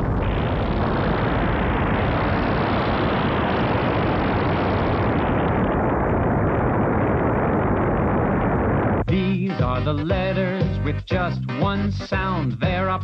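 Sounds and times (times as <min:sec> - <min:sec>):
volcano eruption rumble: 0:00.0 - 0:09.4.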